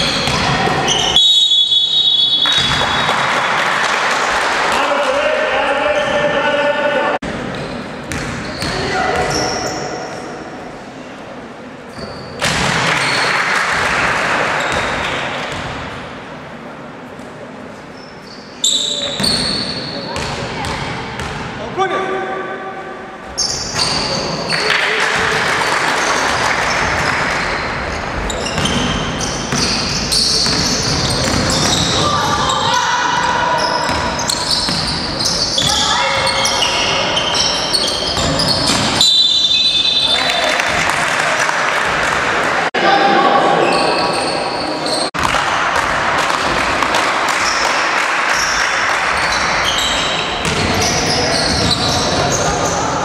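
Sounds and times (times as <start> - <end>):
basketball bouncing on court: 0.0 - 1.0, 7.3 - 9.4, 20.1 - 21.6, 28.3 - 32.6, 33.2 - 36.6, 38.0 - 39.0, 50.4 - 52.3
sneakers squeaking on court: 0.0 - 1.2, 7.3 - 10.4, 11.9 - 13.3, 14.6 - 16.0, 17.9 - 21.5, 23.2 - 24.7, 26.0 - 40.4, 43.6 - 45.3, 48.4 - 53.0
voices echoing in hall: 0.0 - 53.0
basketball bouncing: 7.5 - 8.8, 30.4 - 32.0, 50.4 - 50.9.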